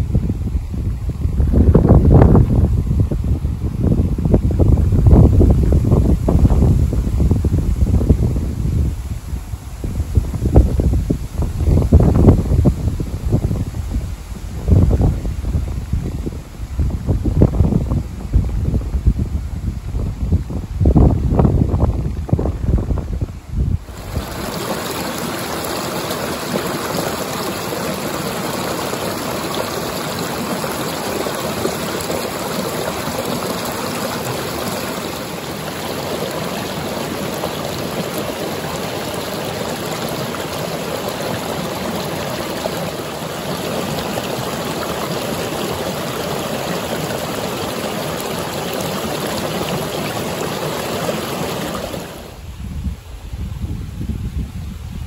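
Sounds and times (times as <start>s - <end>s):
stream flowing over rocks: 23.8s - 52.4s.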